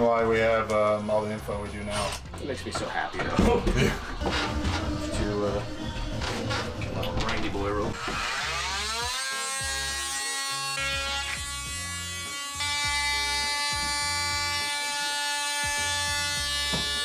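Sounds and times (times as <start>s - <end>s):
background music: 0.0s - 17.0s
cordless drill whining: 8.0s - 10.0s.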